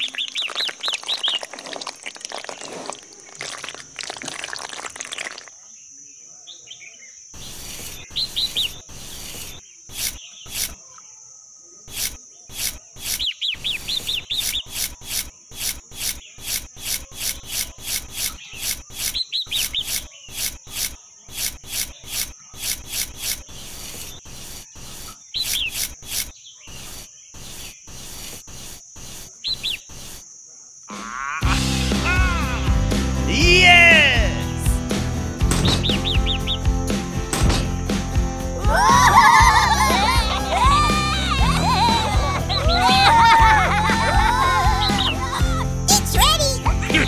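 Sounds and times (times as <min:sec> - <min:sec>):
trowel scraping wet cement: 0:00.0 - 0:04.5, 0:11.9 - 0:30.2
birds chirping: 0:00.0 - 0:31.3, 0:33.2 - 0:47.0.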